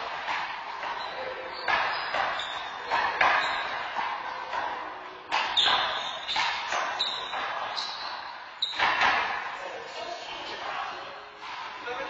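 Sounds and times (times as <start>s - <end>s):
handball smacking wall and floor: 0.0s - 9.5s.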